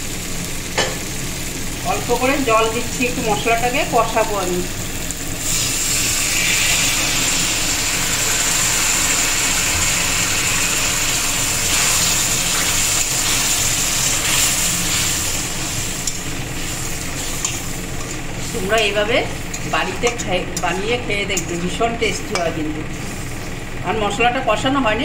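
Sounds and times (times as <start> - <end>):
oil and spices sizzling: 0.0 - 25.0
steam hissing: 5.2 - 20.0.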